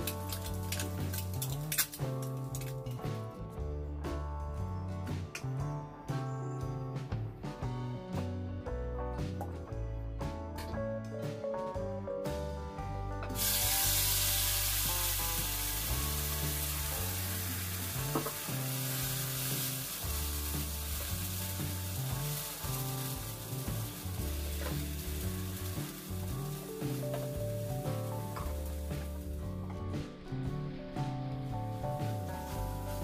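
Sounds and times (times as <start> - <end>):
paste sizzling in hot oil: 13.4 - 29.4, 31.8 - 33.0.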